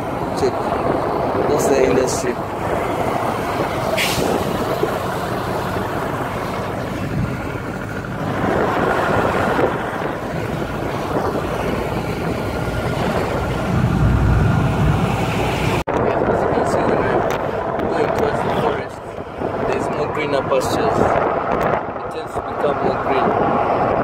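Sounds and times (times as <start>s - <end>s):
vehicle road noise: 0.0s - 24.0s
wind buffeting microphone: 0.0s - 24.0s
low rumble: 2.3s - 18.0s.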